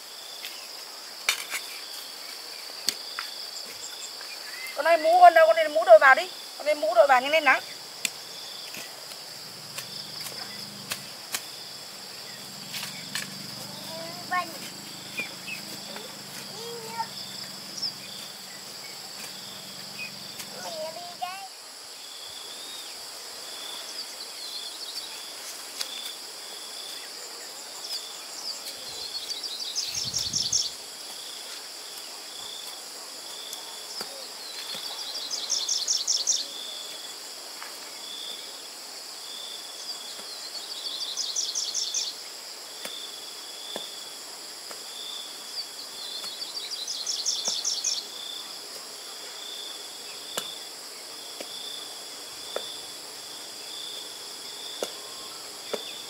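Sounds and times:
insects chirring: 0:00.0 - 0:56.0
regular insect chirp: 0:00.0 - 0:56.0
insect buzzing phrase: 0:09.4 - 0:21.6.

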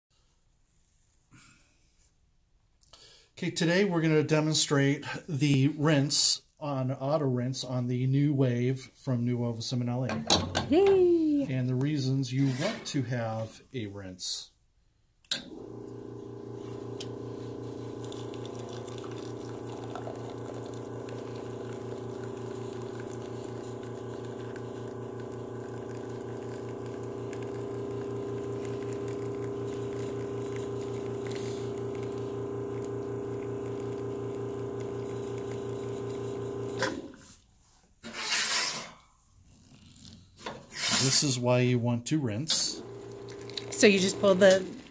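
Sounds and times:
espresso machine pump humming: 0:15.4 - 0:37.1, 0:42.7 - 0:44.9
espresso trickling: 0:15.6 - 0:37.0, 0:42.7 - 0:44.9.

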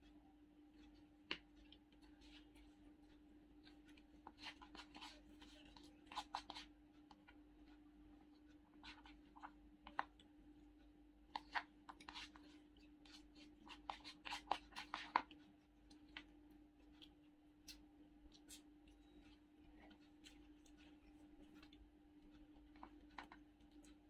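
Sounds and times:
faint steady hum: 0:00.0 - 0:24.0
plastic spoon scraping paper bucket: 0:00.8 - 0:06.7, 0:11.3 - 0:15.4.

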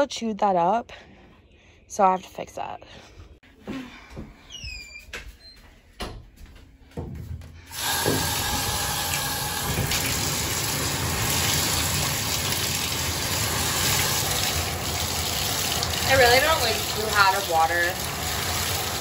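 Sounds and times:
water running into a sink: 0:07.7 - 0:19.0.

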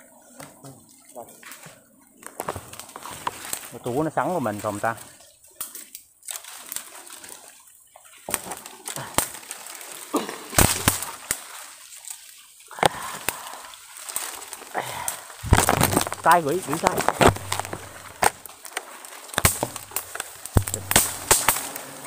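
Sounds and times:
leaves rustling: 0:00.0 - 0:22.0
twigs and branches snapping: 0:01.4 - 0:22.0.

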